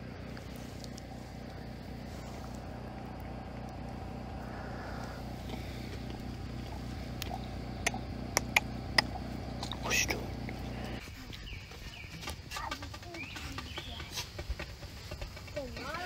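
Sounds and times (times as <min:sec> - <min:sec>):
motor humming: 0:00.0 - 0:11.0
sharp clicks: 0:07.2 - 0:10.6.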